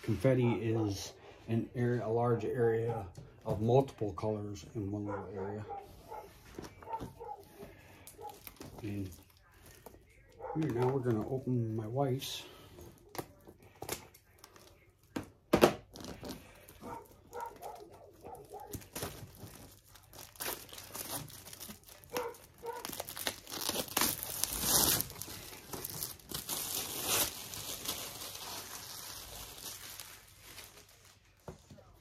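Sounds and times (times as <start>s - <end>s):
packaging crinkling and tearing: 6.1s - 15.2s, 15.8s - 32.0s.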